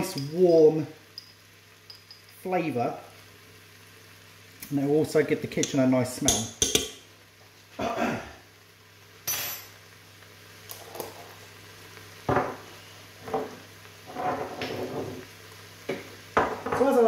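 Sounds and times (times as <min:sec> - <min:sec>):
faint steady hum: 0:00.0 - 0:17.0
jars knocking on worktop: 0:06.3 - 0:07.0.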